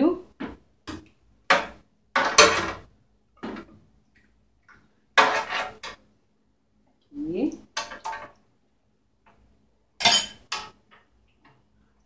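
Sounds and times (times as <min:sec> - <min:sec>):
ladle scraping metal tray: 0:05.2 - 0:06.0.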